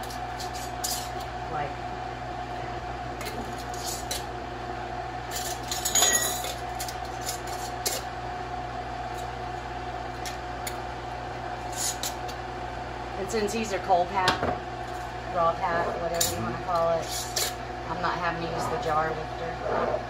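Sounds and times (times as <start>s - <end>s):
appliance hum: 0.0s - 20.0s
metal lids clinking on glass jars: 5.7s - 6.6s.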